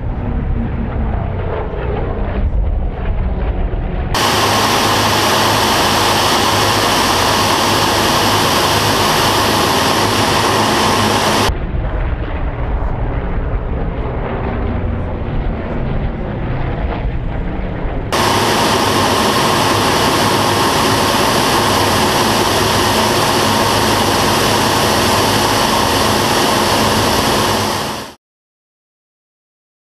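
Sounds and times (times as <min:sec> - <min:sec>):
cockpit airflow noise: 0:00.0 - 0:11.8, 0:12.9 - 0:28.2
distant aircraft engine drone: 0:00.0 - 0:28.2
radial engines in cockpit: 0:00.0 - 0:28.2.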